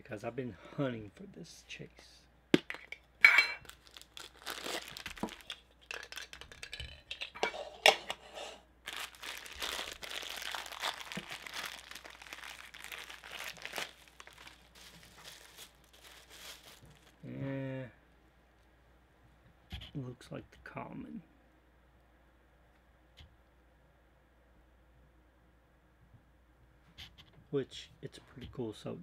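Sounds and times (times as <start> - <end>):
plastic packaging crinkling: 3.6 - 7.4, 8.8 - 17.3.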